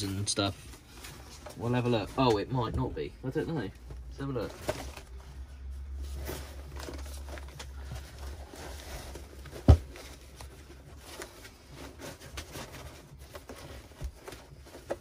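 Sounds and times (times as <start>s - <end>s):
fabric rustling: 4.2s - 15.0s.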